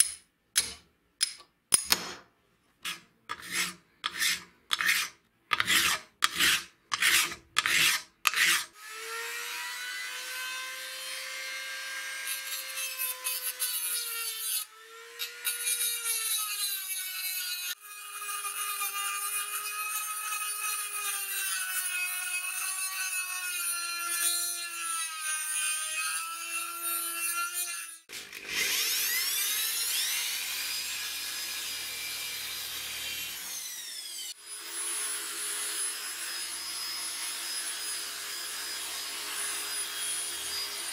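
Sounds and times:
hand file rasping on metal: 0:02.8 - 0:08.7
rotary tool grinding metal: 0:02.8 - 0:08.8.

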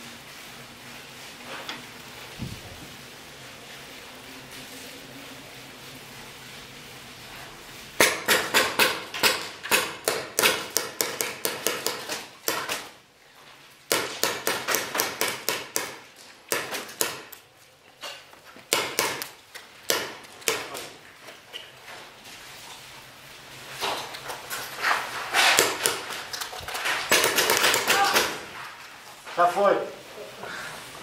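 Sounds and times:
rapid paintball gunfire: 0:27.1 - 0:28.4
paintball hits: 0:27.1 - 0:28.5.

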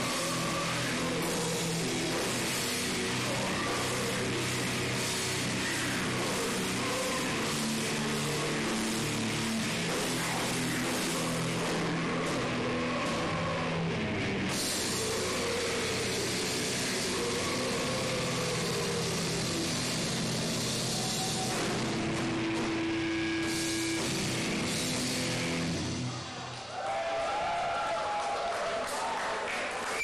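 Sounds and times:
heavy metal band playing live: 0:00.0 - 0:26.6.

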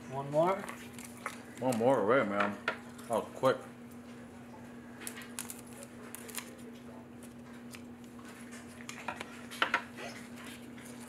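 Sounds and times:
scissors snipping foil: 0:05.0 - 0:06.7.

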